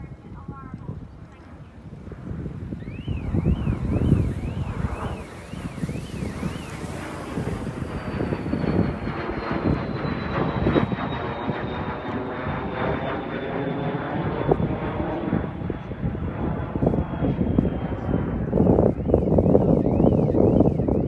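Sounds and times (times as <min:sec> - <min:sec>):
faint high whine: 0:01.1 - 0:21.0
engine drone: 0:02.8 - 0:15.7.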